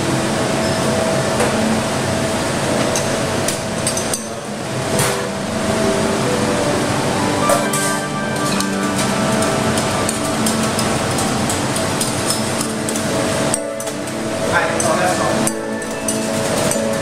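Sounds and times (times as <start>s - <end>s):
steady rushing hum: 0.0s - 17.0s
steel pots clinking: 7.5s - 17.0s.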